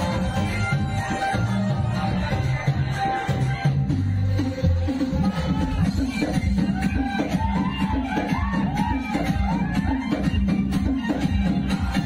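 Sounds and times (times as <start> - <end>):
dance music with heavy bass: 0.0 - 12.0.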